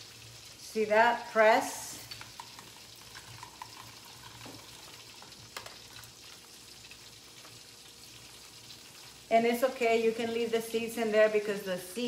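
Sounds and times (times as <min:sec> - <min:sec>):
lemon crackling on juicer: 0:02.0 - 0:09.3.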